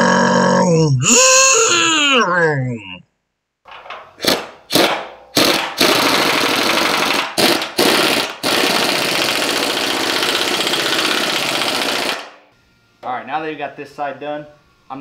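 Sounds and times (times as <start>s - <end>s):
pneumatic impact wrench hammering: 3.8s - 12.4s.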